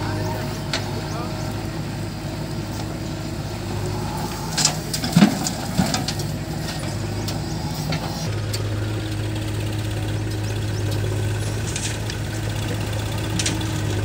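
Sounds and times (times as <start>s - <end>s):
diesel engine running: 0.0s - 14.0s
soil dumping into steel trailer: 4.1s - 7.0s
clattering knocks and thuds: 4.6s - 7.0s.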